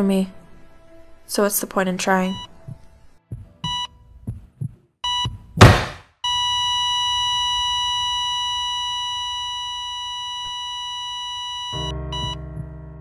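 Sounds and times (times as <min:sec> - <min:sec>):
heart monitor beeping: 0:02.3 - 0:12.7
soft low thumps: 0:02.4 - 0:06.0
loud thud: 0:05.6 - 0:06.0
high flatline tone: 0:06.3 - 0:12.4.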